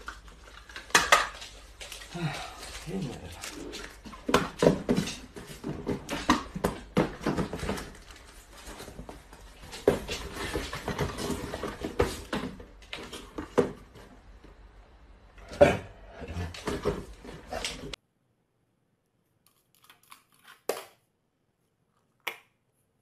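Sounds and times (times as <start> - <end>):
cardboard boxes knocking and rustling: 4.0 - 14.2.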